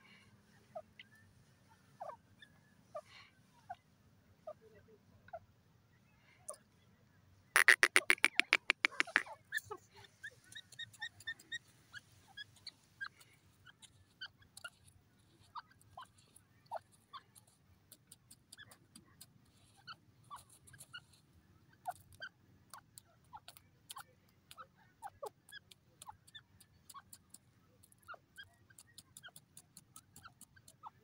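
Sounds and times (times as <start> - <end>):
bird chirps: 7.6 - 14.8
bird pecking sand ticks: 7.6 - 31.0.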